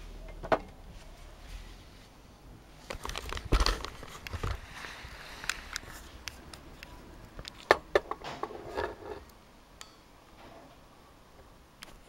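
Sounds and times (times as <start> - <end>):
camera handling noise: 2.9 - 7.7.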